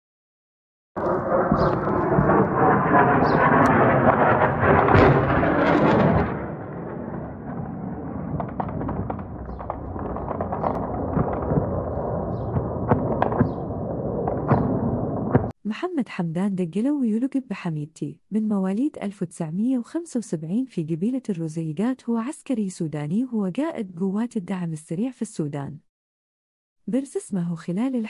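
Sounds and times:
gunfire cracks: 1.0 - 15.5
jet roaring overhead: 1.0 - 15.5.

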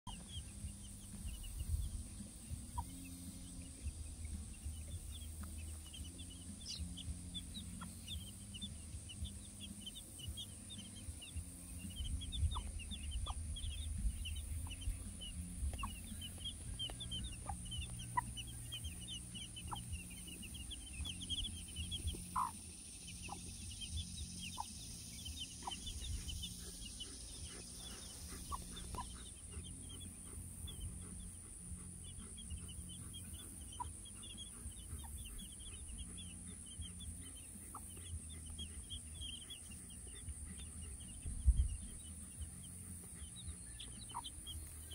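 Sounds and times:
chicks peeping: 0.1 - 44.9
hen clucking: 0.1 - 44.9.

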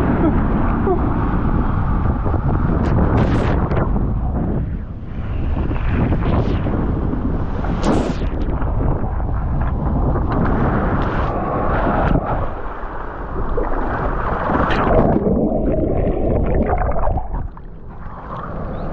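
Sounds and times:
water rushing and splashing: 10.6 - 18.9.

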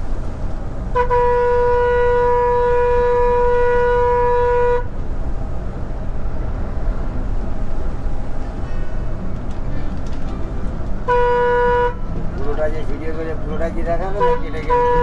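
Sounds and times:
bus engine and tyres rumbling: 0.0 - 15.0
bus horn blast: 0.9 - 5.0, 11.0 - 12.6, 13.9 - 15.0.

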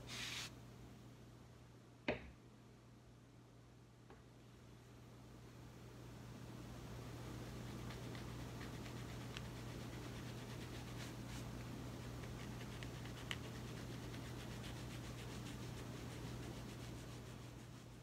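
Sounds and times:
steady low hum: 0.0 - 18.0
comb scratching through hair: 7.6 - 18.0.

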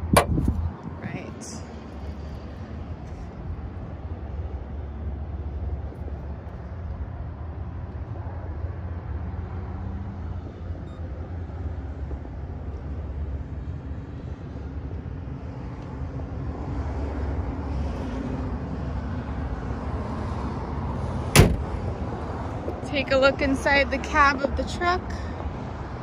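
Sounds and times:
hood slamming shut: 0.0 - 0.7, 21.3 - 21.8.

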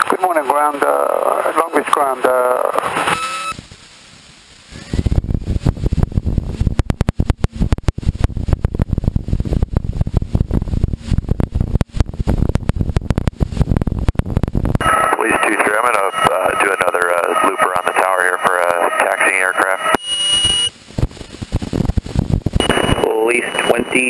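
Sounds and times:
airplane engine at full power: 14.8 - 20.7.

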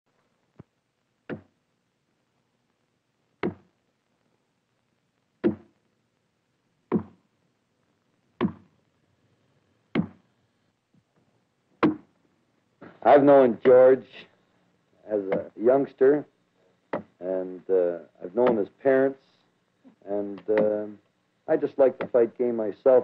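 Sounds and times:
sharp knocks: 8.4 - 8.7, 10.0 - 10.2, 11.8 - 12.1.

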